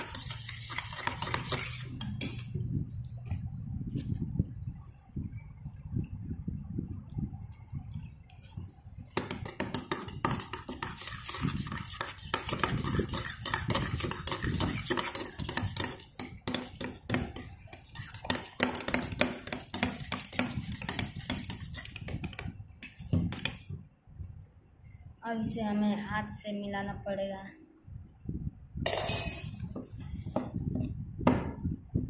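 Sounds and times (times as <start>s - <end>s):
spoon stirring in steel bowl: 0.0s - 3.3s, 8.5s - 23.7s.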